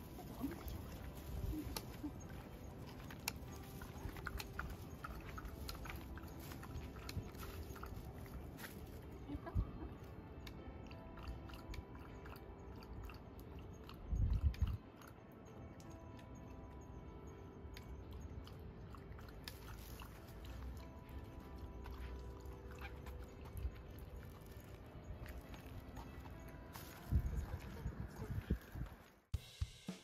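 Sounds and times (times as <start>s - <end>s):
dog lapping water: 0.0s - 8.6s, 10.8s - 15.3s, 18.4s - 28.6s
faint music: 0.0s - 30.0s.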